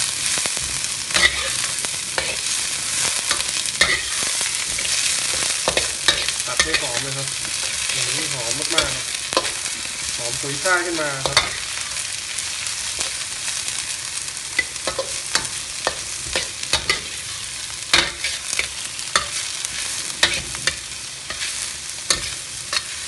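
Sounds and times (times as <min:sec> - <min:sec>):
vegetables sizzling in a wok: 0:00.0 - 0:23.0
metal spatula scraping pan: 0:01.1 - 0:09.8, 0:14.6 - 0:23.0.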